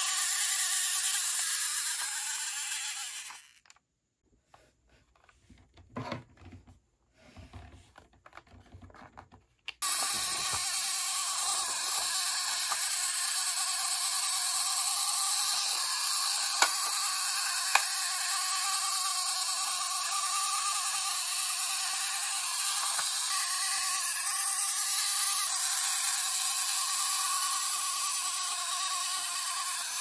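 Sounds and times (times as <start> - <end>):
clockwork motor whirring: 0.0 - 3.8, 9.8 - 30.0.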